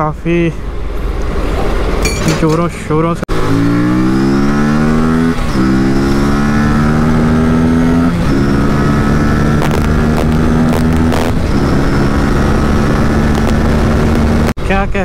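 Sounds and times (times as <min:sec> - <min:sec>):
motorcycle engine pulling hard: 0:03.3 - 0:14.6
steady rush of noise: 0:09.5 - 0:11.5, 0:12.9 - 0:15.0.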